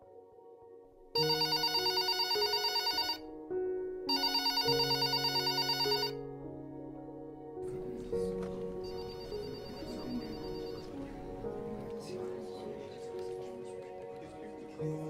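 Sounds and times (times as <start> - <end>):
soft background music: 0.0 - 15.0
desk telephone trilling ring: 1.2 - 3.2, 4.1 - 6.2, 8.8 - 11.2.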